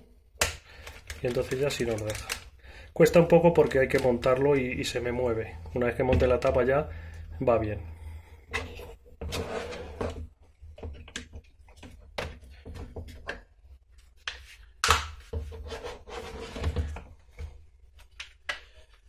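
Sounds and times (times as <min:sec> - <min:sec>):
plastic parts clicking and knocking: 0:00.4 - 0:04.8.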